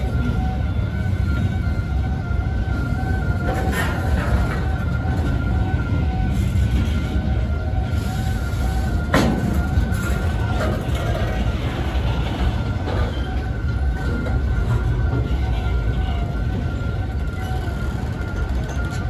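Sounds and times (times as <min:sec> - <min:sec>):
freight train rumbling past: 0:00.0 - 0:19.0
high wheel squeal: 0:14.7 - 0:19.0.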